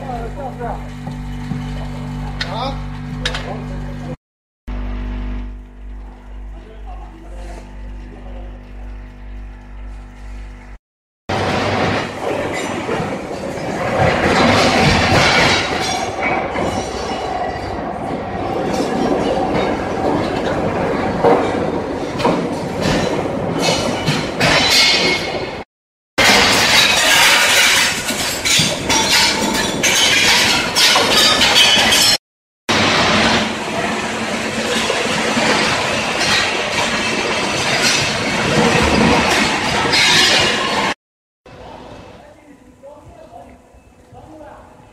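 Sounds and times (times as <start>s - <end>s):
steady low hum: 0.0s - 10.8s
constant machine whine: 0.0s - 25.2s, 26.2s - 44.9s.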